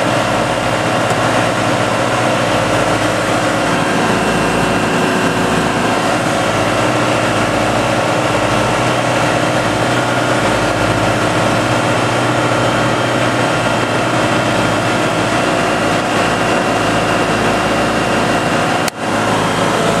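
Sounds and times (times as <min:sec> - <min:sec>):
motorglider engine running: 0:00.0 - 0:20.0.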